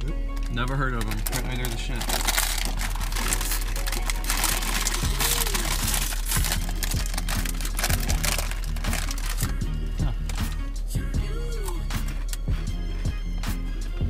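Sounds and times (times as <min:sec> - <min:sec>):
background music: 0:00.0 - 0:14.0
snack bags crinkling: 0:00.2 - 0:09.6.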